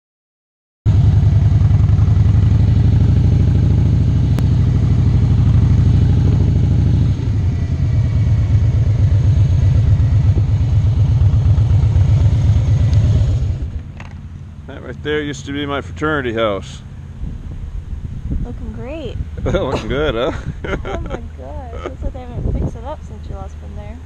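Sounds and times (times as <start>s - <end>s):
motorcycle engine pulsing: 0.9s - 16.0s.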